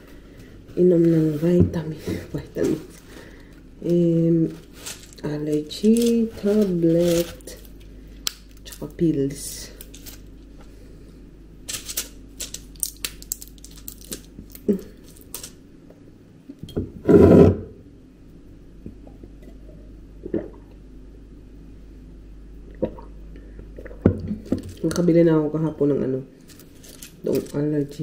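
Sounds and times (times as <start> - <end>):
pill packets clicking: 11.7 - 15.5.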